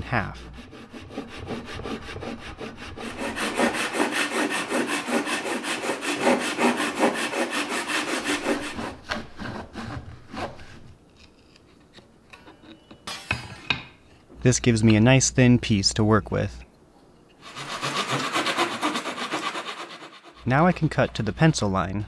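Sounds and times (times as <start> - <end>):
handsaw sawing wood: 0.0 - 10.6, 17.4 - 21.7.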